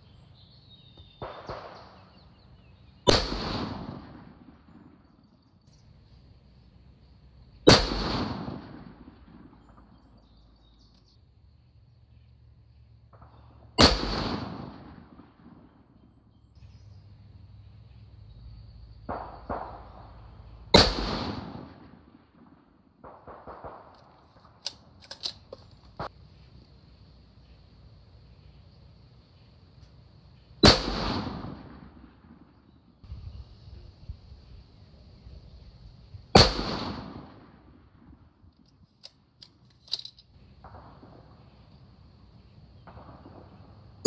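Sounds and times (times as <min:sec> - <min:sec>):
rifle shots echoing: 0:01.1 - 0:02.3, 0:03.0 - 0:05.2, 0:07.6 - 0:10.3, 0:13.1 - 0:16.0, 0:19.1 - 0:24.6, 0:30.6 - 0:32.7, 0:36.3 - 0:38.2, 0:40.6 - 0:41.6, 0:42.8 - 0:43.9
rifle bolt clacks: 0:23.9 - 0:25.9.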